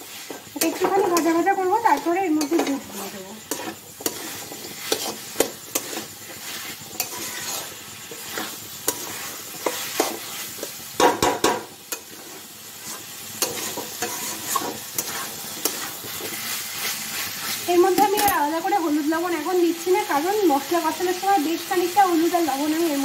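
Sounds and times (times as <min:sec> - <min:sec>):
spatula scraping a pan: 0:00.0 - 0:18.5
potatoes sizzling in oil: 0:00.0 - 0:23.0.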